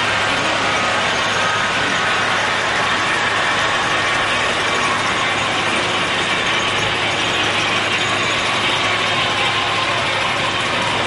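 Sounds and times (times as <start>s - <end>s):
model trains running on track: 0.0s - 11.0s.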